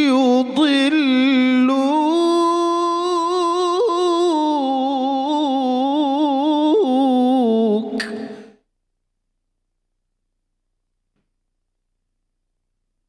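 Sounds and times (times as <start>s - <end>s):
man reciting melodically: 0.0s - 8.5s.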